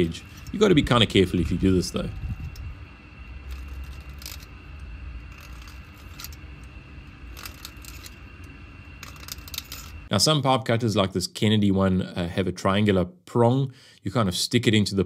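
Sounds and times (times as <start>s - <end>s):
low hum: 0.0s - 13.0s
knife scraping metal pipe: 3.4s - 10.1s.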